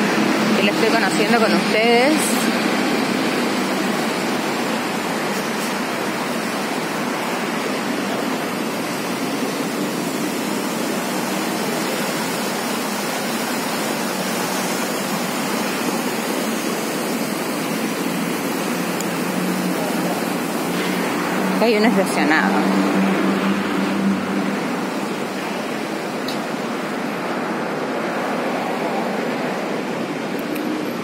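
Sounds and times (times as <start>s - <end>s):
water falling down fountain wall: 0.0s - 31.0s.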